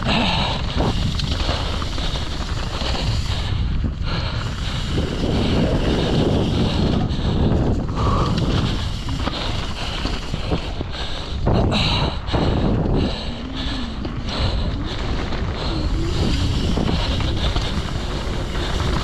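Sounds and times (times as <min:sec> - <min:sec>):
bike knocking and rattling: 0:00.0 - 0:19.0
tyres on dirt: 0:00.0 - 0:19.0
wind on microphone: 0:00.0 - 0:19.0.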